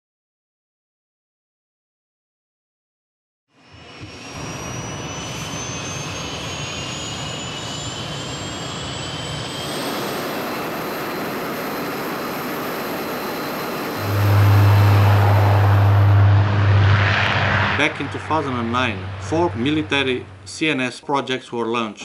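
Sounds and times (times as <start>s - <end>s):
propeller engine drone: 3.6s - 20.7s
turbine engine whine: 3.6s - 20.8s.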